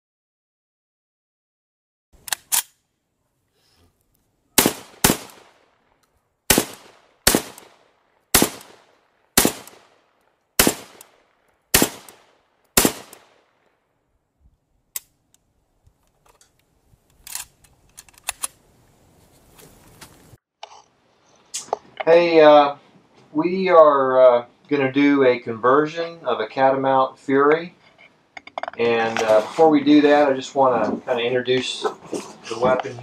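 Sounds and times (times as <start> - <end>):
gunshots echoing: 4.6 - 5.8, 6.5 - 13.6.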